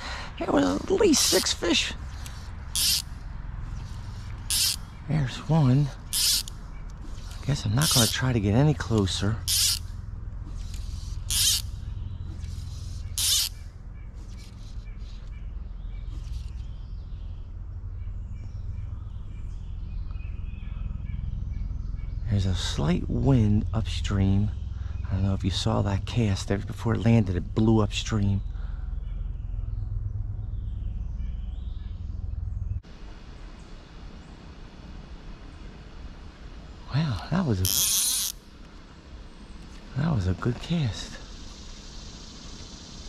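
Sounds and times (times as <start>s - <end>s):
faint bird chirps: 10.5s - 34.4s.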